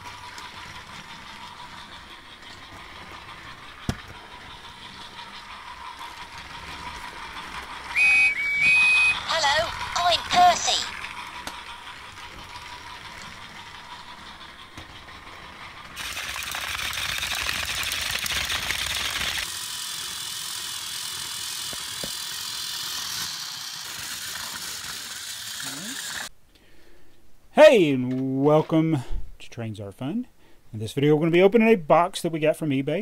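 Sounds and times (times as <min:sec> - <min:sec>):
toy train motors and gears: 0:00.0 - 0:26.3.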